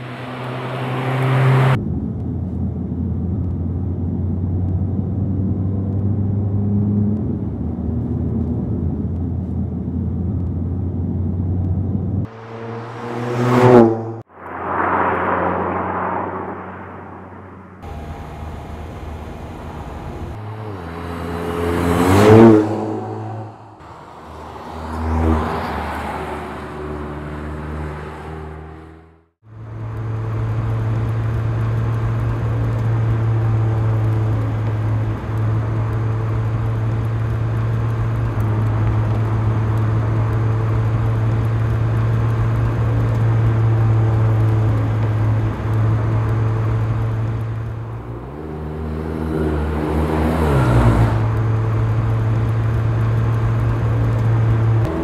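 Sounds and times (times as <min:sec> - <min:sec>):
car engine passing by: 0:00.0 - 0:01.8, 0:12.2 - 0:29.2, 0:38.6 - 0:55.0.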